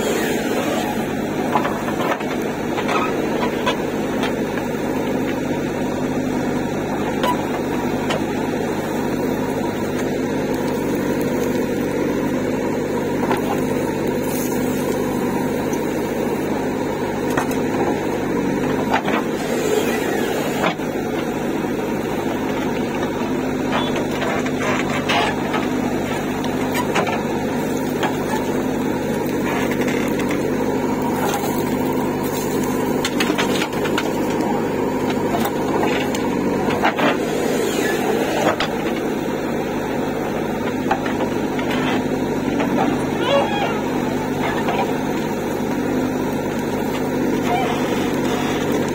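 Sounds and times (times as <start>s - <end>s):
diesel engine running: 0.0s - 48.9s
bucket scraping earth and stones: 23.1s - 39.0s.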